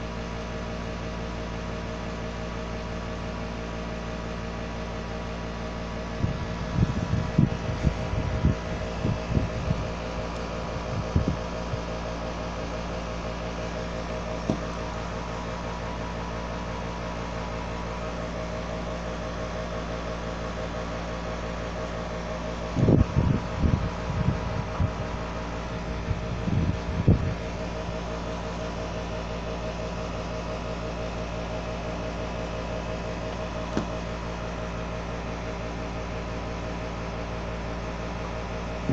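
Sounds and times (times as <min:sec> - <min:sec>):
electrical hum: 0:00.0 - 0:38.9
phone handling thumps: 0:14.4 - 0:14.9, 0:33.7 - 0:34.0.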